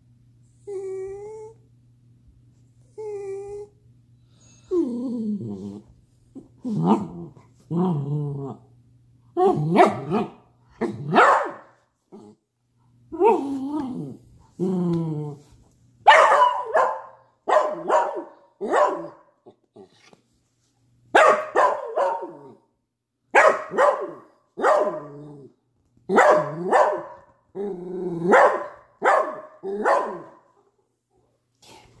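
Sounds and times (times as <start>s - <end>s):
dog barking: 9.4s - 11.8s, 16.0s - 19.3s, 21.1s - 22.6s, 23.3s - 25.2s, 26.1s - 27.3s, 28.3s - 30.4s.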